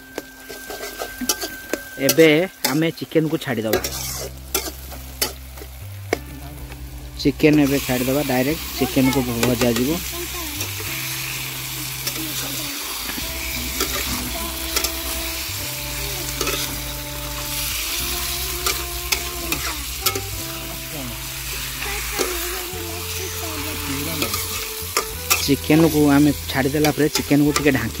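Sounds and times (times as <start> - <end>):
chicken sizzling in hot oil: 0.0 - 28.0
metal spatula scraping pan: 0.1 - 2.9, 3.7 - 5.8, 10.5 - 22.5, 23.2 - 26.4.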